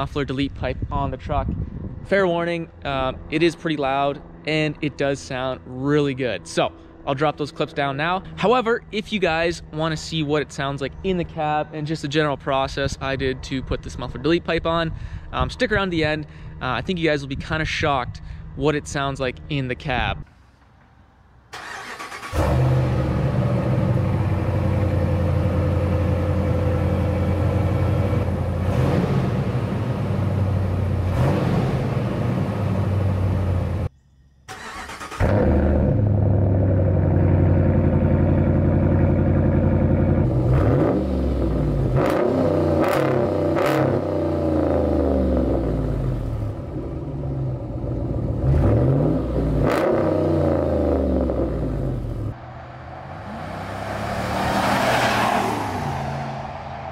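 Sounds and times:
loud engine exhaust idling and revving: 22.3 - 34.2, 35.2 - 54.8.

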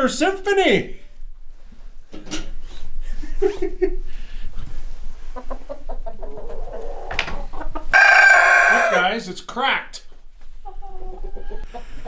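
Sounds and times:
chickens and roosters clucking: 3.4 - 9.2, 10.4 - 12.0.

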